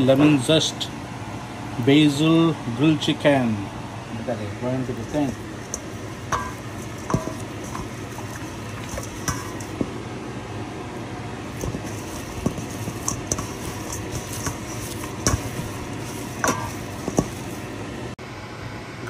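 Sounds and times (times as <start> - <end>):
steady background hum: 0.0 - 19.0
hand squelching marinade into chicken: 4.9 - 9.9, 11.5 - 17.7
light taps on metal bowl: 5.0 - 9.9.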